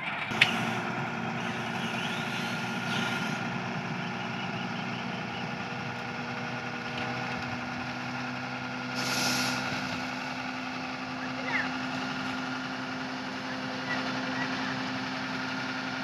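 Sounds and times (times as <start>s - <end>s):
diesel lorry engine running: 0.0s - 16.0s
short hiss: 9.0s - 9.8s.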